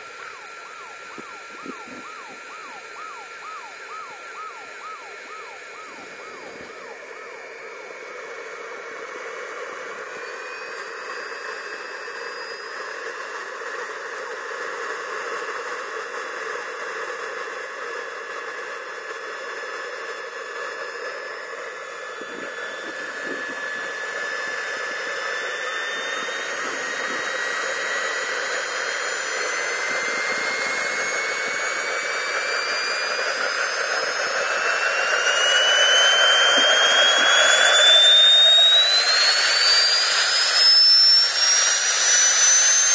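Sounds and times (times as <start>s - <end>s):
turbine jet whine: 0.0s - 42.9s.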